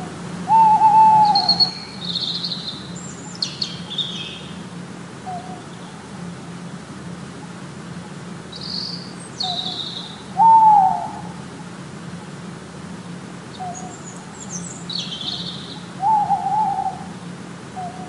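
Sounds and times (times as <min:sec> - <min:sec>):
owl hooting: 0:00.0 - 0:04.5, 0:05.2 - 0:05.7, 0:08.6 - 0:12.4, 0:13.5 - 0:18.0
steady low hum: 0:00.0 - 0:18.0.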